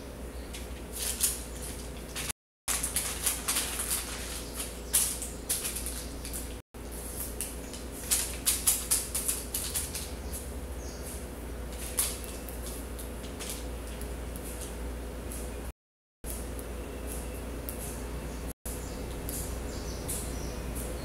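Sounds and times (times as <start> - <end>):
steady low hum: 0.0 - 15.7
paper crinkling and rustling: 0.5 - 10.2, 11.7 - 14.8.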